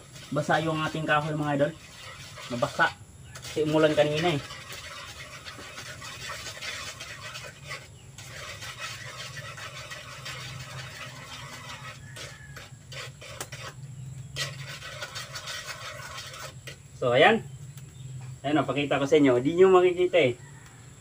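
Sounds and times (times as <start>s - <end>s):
metal spoon scraping a wok: 0.0s - 16.9s.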